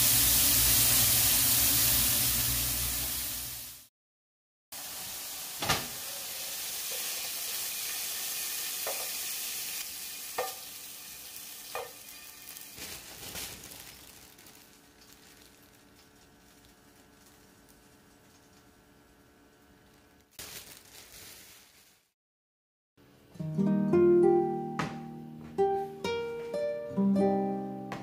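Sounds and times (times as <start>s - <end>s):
chicken sizzling in a frying pan: 0.0s - 3.9s, 4.7s - 19.0s.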